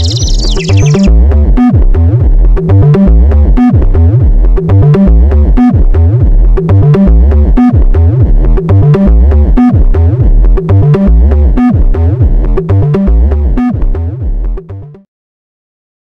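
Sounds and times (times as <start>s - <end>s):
electronic synthesizer music: 0.0s - 1.2s.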